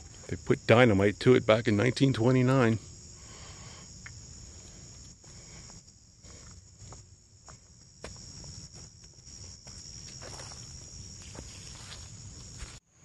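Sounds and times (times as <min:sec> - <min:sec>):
insects chirping: 0:00.0 - 0:13.0
footsteps through undergrowth: 0:08.0 - 0:12.9.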